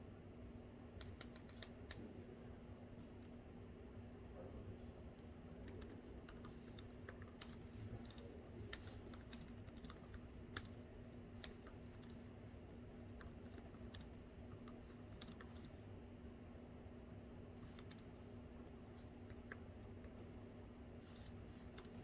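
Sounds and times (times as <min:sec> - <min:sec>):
steady low hum: 0:00.0 - 0:22.0
laptop keyboard typing: 0:00.8 - 0:02.0, 0:05.6 - 0:15.8, 0:21.1 - 0:22.0.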